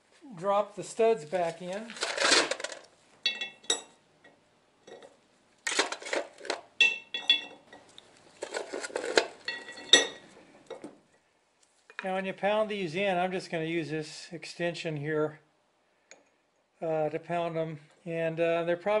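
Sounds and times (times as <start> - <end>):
metal wheel studs clinking: 3.2 - 4.0, 6.8 - 7.9, 9.0 - 10.8.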